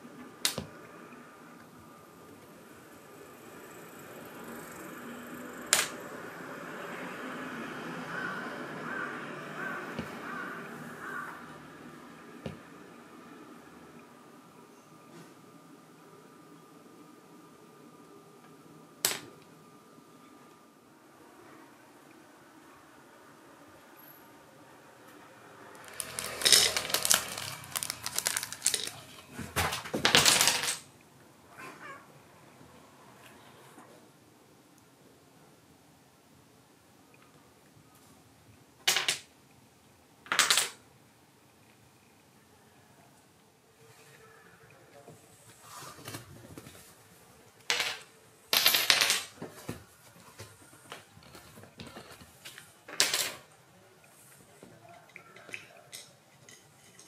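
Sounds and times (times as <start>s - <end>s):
cat crunching dry kibble: 25.8s - 29.3s
dominoes clattering on wooden floor: 25.8s - 30.9s, 38.9s - 39.3s, 40.3s - 40.8s, 47.7s - 49.4s, 52.9s - 53.5s.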